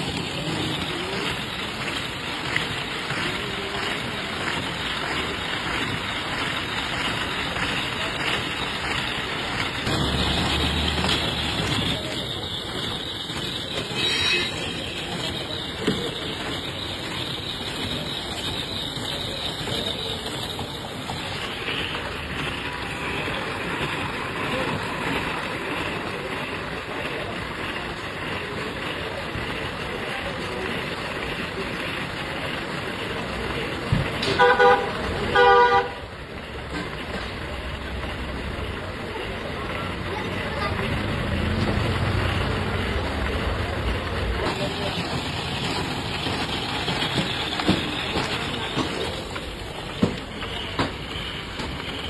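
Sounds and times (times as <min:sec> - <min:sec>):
rotating drum machine rumble: 0:00.0 - 0:35.3
street noise: 0:00.0 - 0:52.0.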